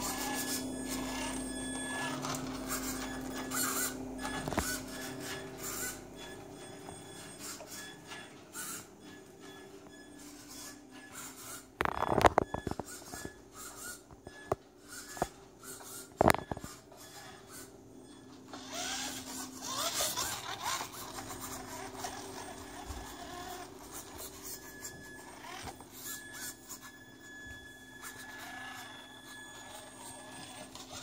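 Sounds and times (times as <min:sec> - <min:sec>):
electric motor whining: 0:00.0 - 0:08.9, 0:18.5 - 0:31.0.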